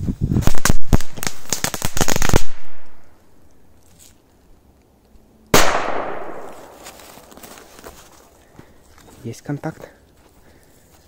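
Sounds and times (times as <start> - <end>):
firecracker crackling pops: 0.4 - 3.2, 5.5 - 7.7
loud firecracker bang: 5.6 - 6.8.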